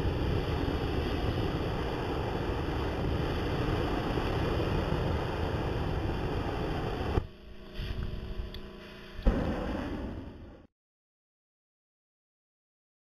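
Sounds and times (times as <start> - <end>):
flamethrower roaring: 0.0 - 8.3, 9.2 - 10.7.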